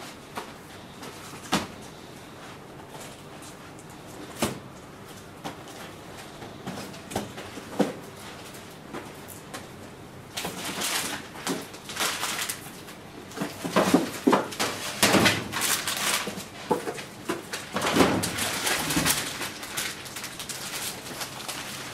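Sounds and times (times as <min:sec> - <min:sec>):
packets rustling and boxes knocking: 0:13.3 - 0:21.9.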